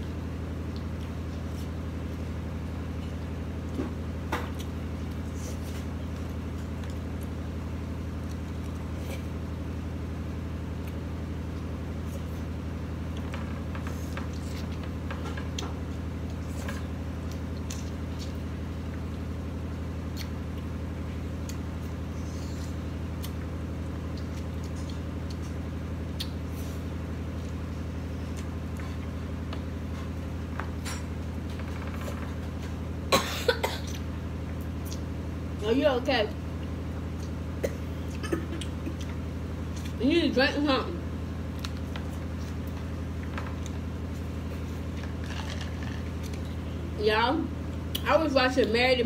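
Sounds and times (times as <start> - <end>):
steady low hum: 0.0 - 49.0
person chewing corn: 0.6 - 9.7, 10.5 - 30.8, 33.9 - 35.1, 36.6 - 37.4, 38.0 - 40.0, 41.4 - 46.8
person coughing: 33.1 - 34.0, 37.6 - 38.6.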